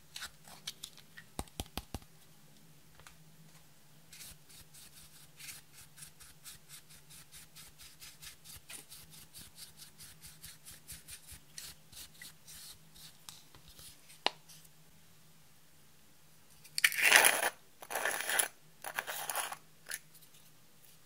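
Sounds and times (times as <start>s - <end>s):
makeup brush scratching eyeshadow: 4.1s - 14.6s.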